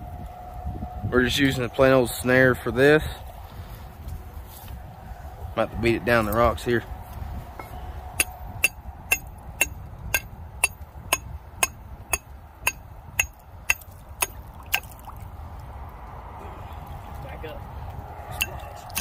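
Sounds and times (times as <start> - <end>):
hammer blows on a stake: 7.6 - 14.9.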